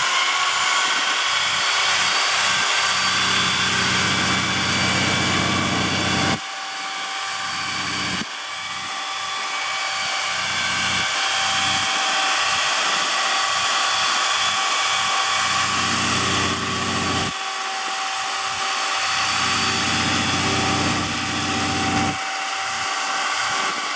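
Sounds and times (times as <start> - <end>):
steady high whine: 0.0 - 23.9
diesel truck engine: 3.0 - 6.4, 19.2 - 22.2.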